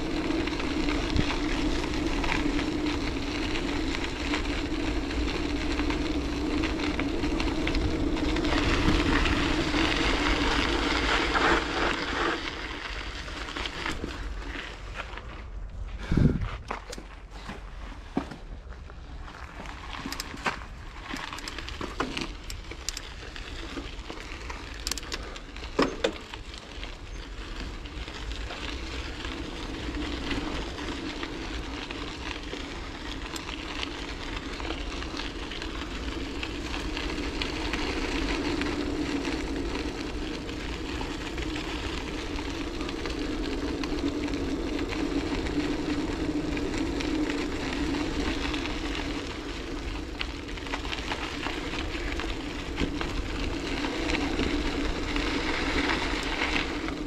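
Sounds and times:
bicycle tyres rolling: 0.0s - 57.0s.

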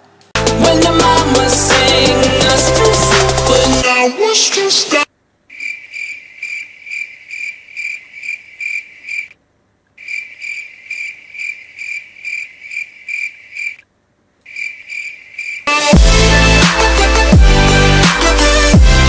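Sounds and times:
cricket chirping: 5.5s - 9.4s, 10.0s - 13.8s, 14.4s - 15.7s.

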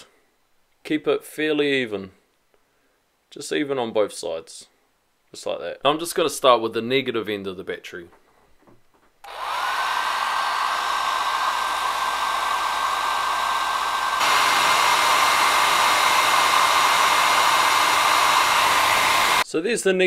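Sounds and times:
hair dryer blowing: 9.2s - 19.4s.

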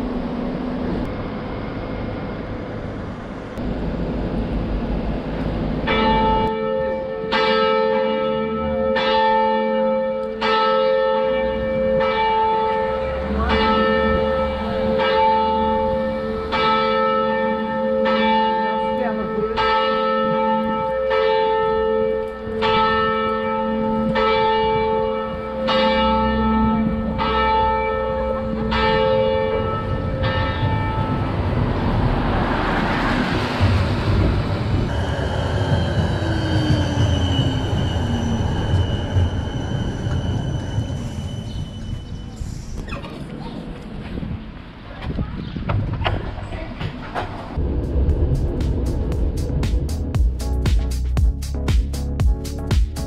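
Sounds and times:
tram rumbling on rails: 0.0s - 53.0s
church bell tolling: 5.8s - 32.5s.

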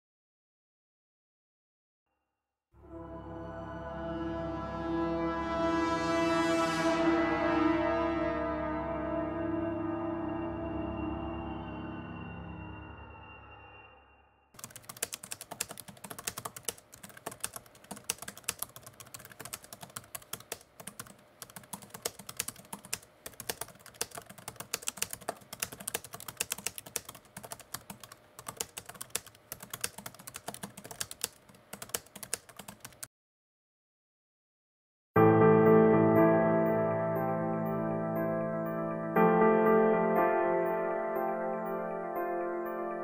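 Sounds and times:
fast keyboard typing: 14.6s - 33.1s.

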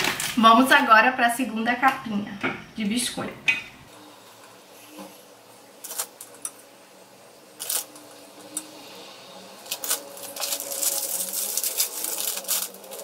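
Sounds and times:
plastic packet crinkling: 5.8s - 6.4s, 7.6s - 8.0s, 9.6s - 13.0s.

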